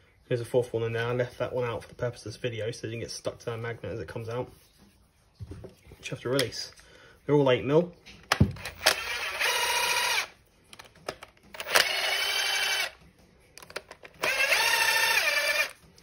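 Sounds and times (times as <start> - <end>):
power driver motor whine: 8.5 - 10.3, 11.6 - 13.0, 14.2 - 15.8.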